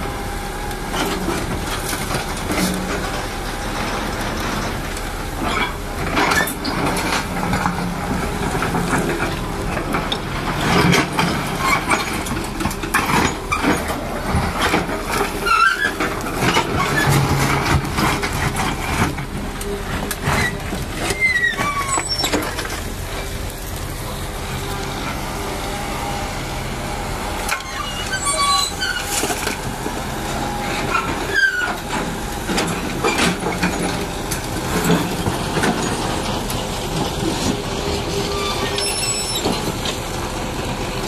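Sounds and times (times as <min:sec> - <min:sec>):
excavator diesel engine: 0:00.0 - 0:41.0
short squeaks: 0:20.4 - 0:22.7, 0:27.5 - 0:29.6, 0:30.9 - 0:31.8, 0:38.3 - 0:39.6.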